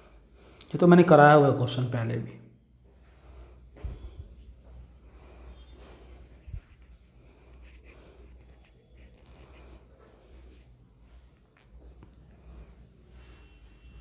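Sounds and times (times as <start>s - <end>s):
quiet breathing: 0.0s - 0.8s, 2.8s - 11.4s, 12.1s - 14.0s
rustling and scratching on microphone: 5.9s - 12.2s.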